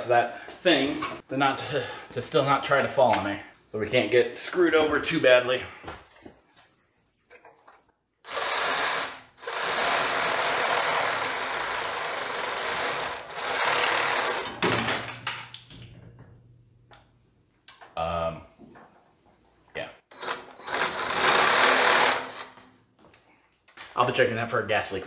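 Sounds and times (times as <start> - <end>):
reciprocating saw cutting metal: 8.3 - 14.4.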